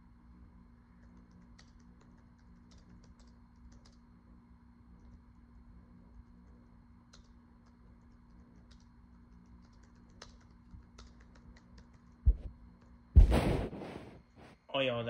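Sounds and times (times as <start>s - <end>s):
low steady hum: 0.0s - 15.0s
faint clicks and taps: 1.0s - 4.0s, 6.1s - 12.9s
loud dull thump: 12.3s - 12.5s, 13.2s - 14.2s.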